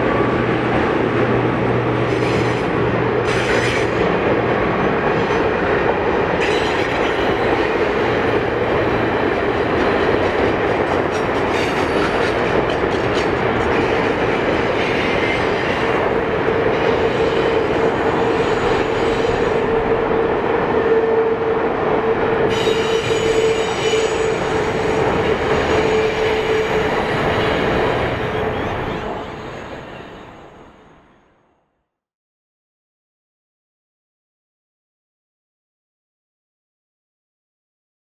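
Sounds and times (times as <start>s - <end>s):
train cars rumbling on rails: 0.0s - 31.1s
high wheel squeal: 22.5s - 30.7s.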